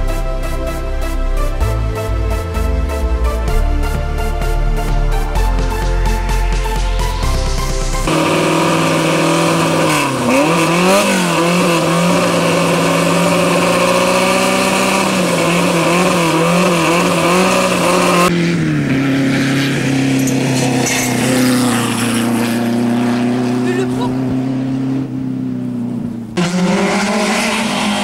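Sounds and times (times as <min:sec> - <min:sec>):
rally car engine steady low note: 0:00.0 - 0:28.0
rally car engine revving at idle: 0:08.0 - 0:28.0.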